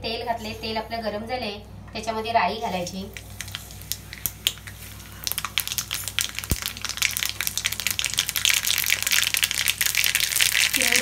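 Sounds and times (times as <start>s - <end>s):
mustard seeds popping in hot oil: 3.0s - 11.0s.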